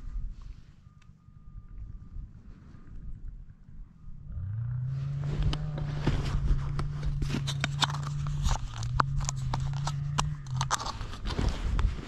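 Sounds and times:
engine running: 3.8 - 11.9
clicks and rustles of handling: 5.4 - 12.0.

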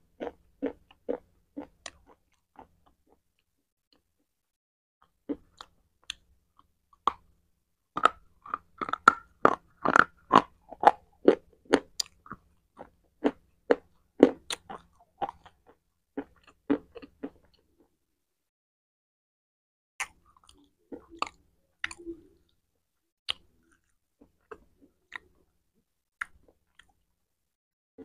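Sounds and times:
crunching and chewing: 0.2 - 3.5, 5.0 - 7.3, 7.9 - 17.7, 20.0 - 22.1, 23.3 - 25.5.

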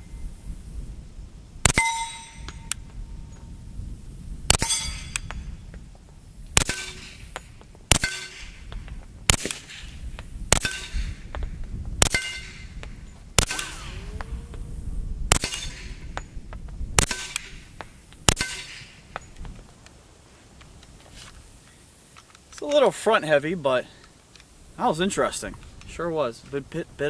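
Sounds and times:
suppressed pistol shots: 1.6 - 2.4, 6.6 - 7.3, 7.9 - 8.7, 9.3 - 11.3, 12.0 - 14.6, 15.3 - 16.2, 17.0 - 19.1.

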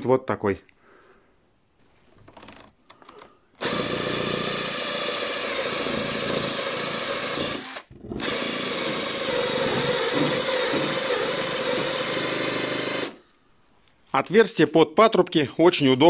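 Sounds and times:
electric drill with hole saw cutting: 3.6 - 13.2.

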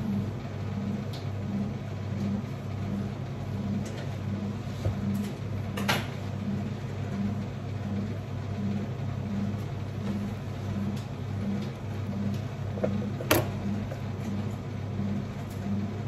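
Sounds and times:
pulsing low motor hum: 0.0 - 16.0.

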